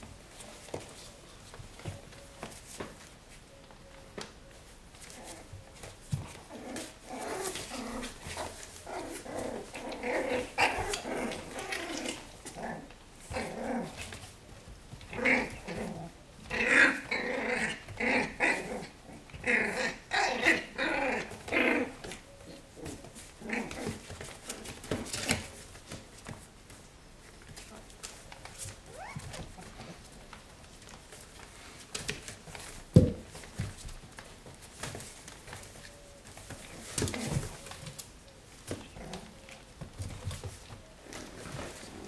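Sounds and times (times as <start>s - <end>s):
puppies growling in play: 5.0s - 26.4s, 28.6s - 30.4s, 36.4s - 38.0s, 38.6s - 42.0s.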